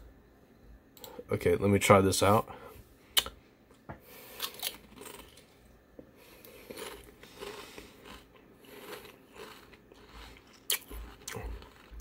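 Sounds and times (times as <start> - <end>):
chewing potato chips: 4.3 - 5.6, 6.3 - 12.0.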